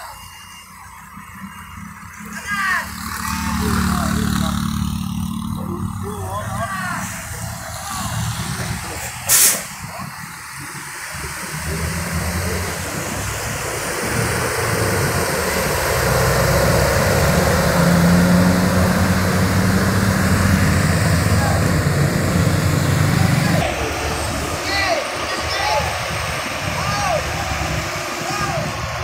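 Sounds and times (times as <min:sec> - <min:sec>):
truck diesel engine: 0:00.0 - 0:29.0
short sharp hiss: 0:09.2 - 0:09.8.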